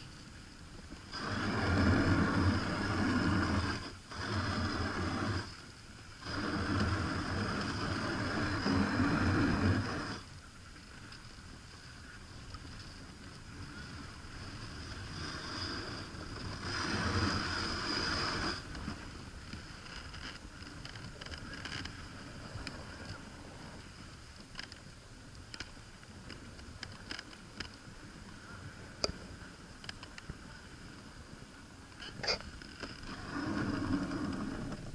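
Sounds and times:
sled runners hissing on snow: 1.0s - 10.4s, 11.8s - 19.8s, 33.1s - 34.9s.

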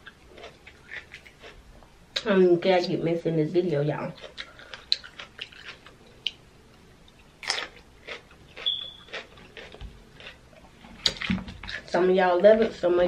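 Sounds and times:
chewing raw pepper with crunches: 0.0s - 1.6s, 4.2s - 6.4s, 7.4s - 11.9s.

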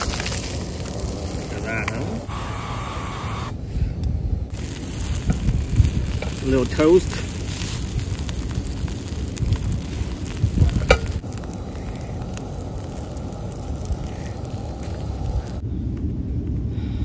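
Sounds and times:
fish sizzling in a skillet: 4.5s - 15.6s.

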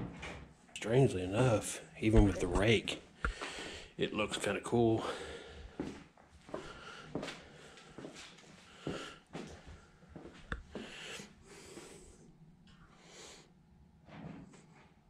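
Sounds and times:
breathing through nose: 3.2s - 4.0s, 6.6s - 8.0s, 8.7s - 9.3s, 10.7s - 12.2s, 12.9s - 13.5s.

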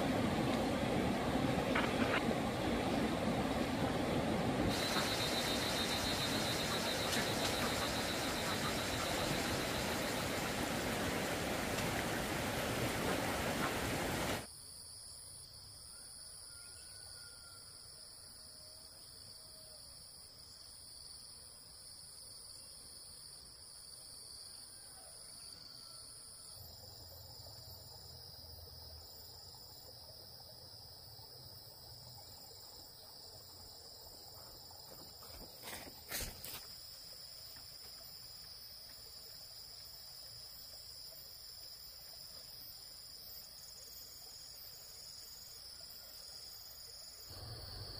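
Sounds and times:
insects chirring: 0.0s - 14.5s, 25.7s - 47.9s.

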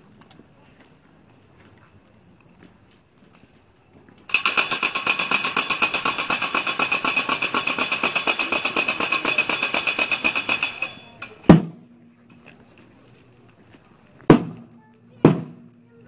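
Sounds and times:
fast metallic percussion roll: 4.3s - 11.5s.

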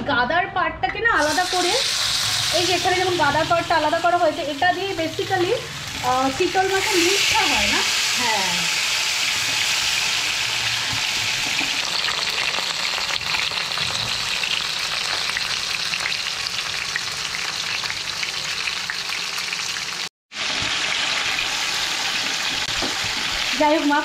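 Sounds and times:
fish frying in hot oil: 1.2s - 24.0s.

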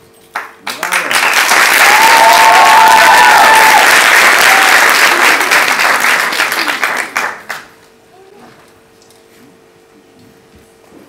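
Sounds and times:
audience applauding: 0.4s - 7.8s
high drawn-out cheer: 0.8s - 7.4s.

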